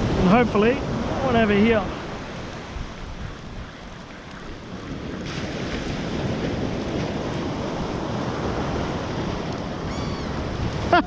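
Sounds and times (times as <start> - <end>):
ocean surf breaking: 0.0 - 11.0
wind buffeting microphone: 0.0 - 11.0.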